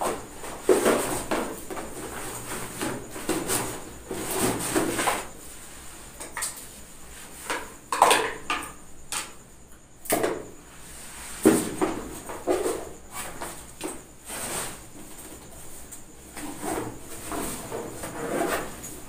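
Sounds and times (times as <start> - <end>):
objects knocking and clattering: 7.4 - 9.4.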